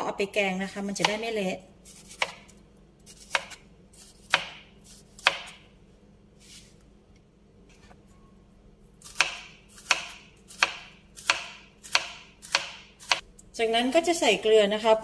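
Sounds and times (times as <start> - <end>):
knife slicing vegetable: 1.0 - 5.6, 9.0 - 13.2.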